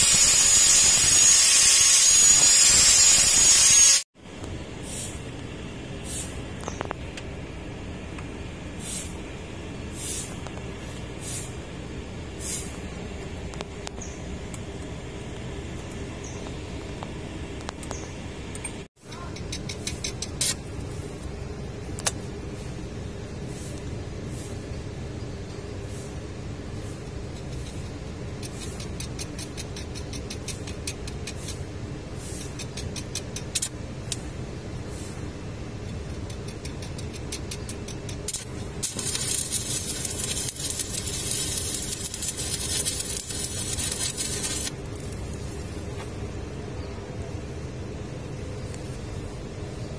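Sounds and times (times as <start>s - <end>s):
stick welding crackles: 0.0s - 4.1s, 35.8s - 46.2s
short hisses: 9.9s - 10.4s.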